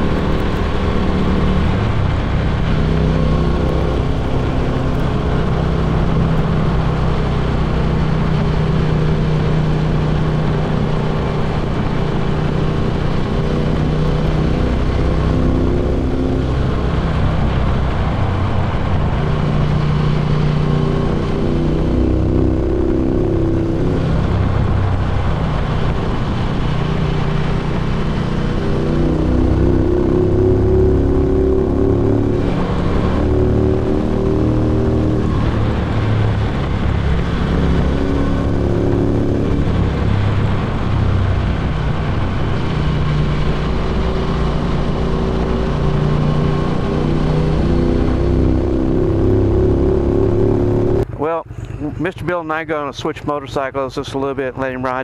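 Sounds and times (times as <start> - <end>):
motorcycle exhaust note: 0.0 - 52.1
wind and road noise: 0.0 - 55.0.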